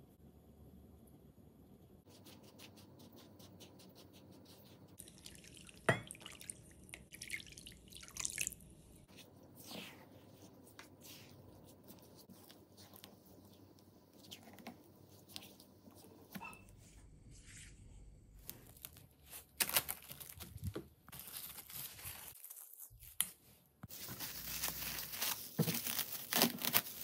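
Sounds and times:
liquid plop and splashing: 0:05.0 - 0:08.6.

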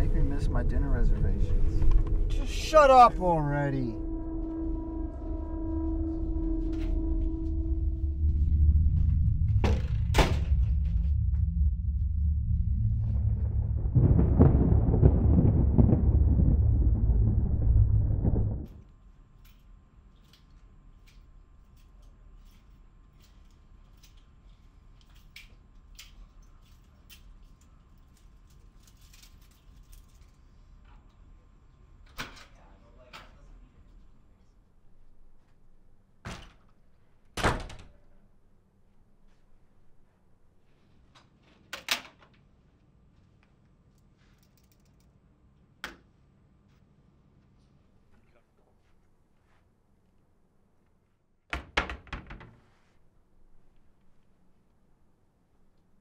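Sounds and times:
faint low hum: 0:00.0 - 0:37.3.

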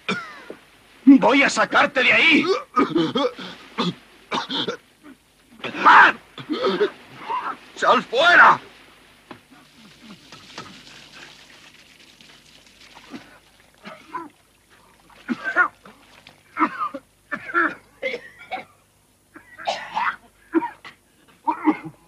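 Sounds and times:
soft hiss: 0:00.0 - 0:21.5
man coughing and gasping: 0:02.3 - 0:04.8, 0:15.3 - 0:15.8, 0:16.6 - 0:22.0.

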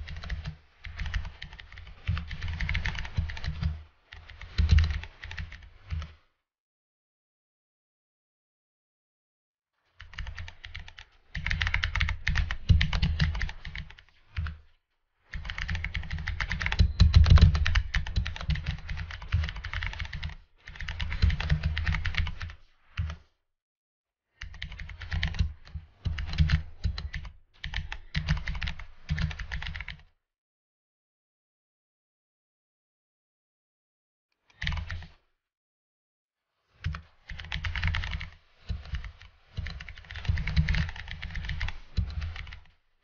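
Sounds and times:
computer keyboard typing: 0:00.0 - 0:06.2, 0:10.0 - 0:14.6, 0:15.3 - 0:23.2, 0:24.4 - 0:30.0, 0:34.5 - 0:35.2, 0:36.8 - 0:42.7.

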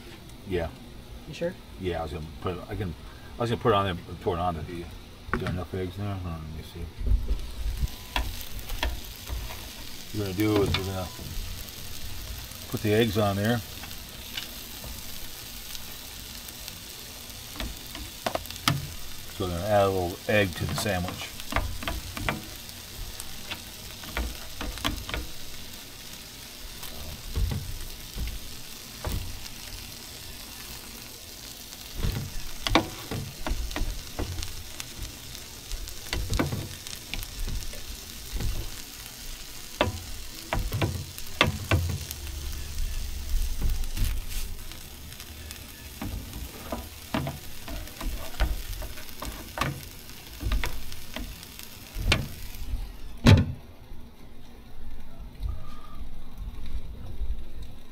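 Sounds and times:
sandwiches sizzling on griddle: 0:00.0 - 0:53.2
sharp clicks and knocks: 0:08.1 - 0:09.9, 0:20.6 - 0:25.4, 0:32.0 - 0:38.8, 0:39.8 - 0:42.2, 0:46.0 - 0:51.4.

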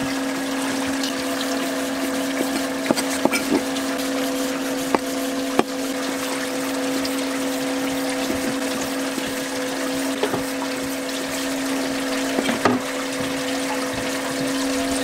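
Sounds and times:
machine hum: 0:00.0 - 0:15.0
rushing water: 0:00.0 - 0:15.0
knife chopping on wooden board: 0:02.4 - 0:03.7, 0:04.7 - 0:05.8.

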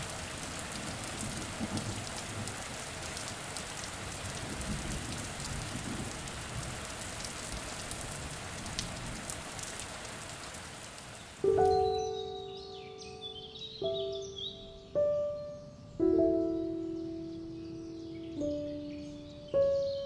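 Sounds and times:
rain on cobblestones and puddles: 0:00.0 - 0:12.2.

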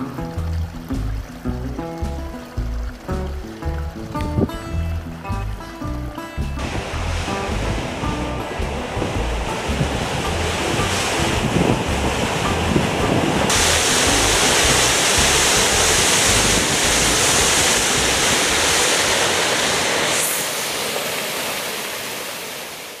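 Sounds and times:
waterfall rushing: 0:00.0 - 0:23.0
wind buffeting microphone: 0:03.9 - 0:20.2.

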